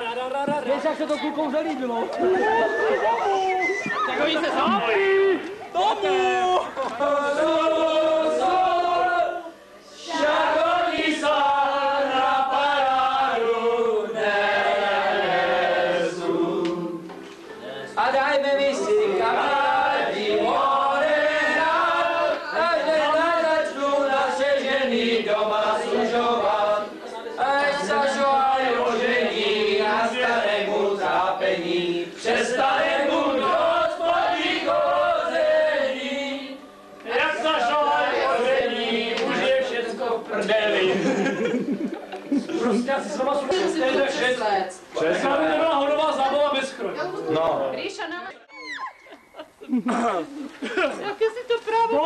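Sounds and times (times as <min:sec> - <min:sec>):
group of people singing: 0:06.6 - 0:41.7.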